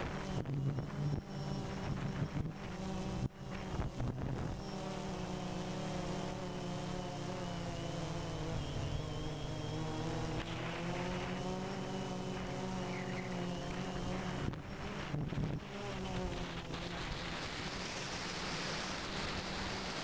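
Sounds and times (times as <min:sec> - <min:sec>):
wind on microphone: 0:00.0 - 0:04.6, 0:10.2 - 0:20.0
drone propellers buzzing: 0:00.0 - 0:20.0.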